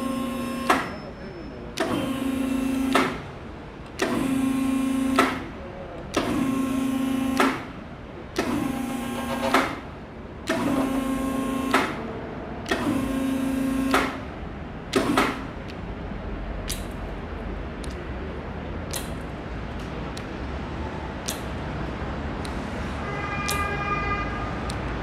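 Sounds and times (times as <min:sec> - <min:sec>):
hydraulic power unit humming: 0:00.0 - 0:01.0, 0:01.7 - 0:15.8
switch clicks: 0:16.6 - 0:17.2, 0:17.8 - 0:18.0, 0:18.8 - 0:20.4, 0:21.2 - 0:21.6, 0:23.5 - 0:23.7, 0:24.6 - 0:25.0.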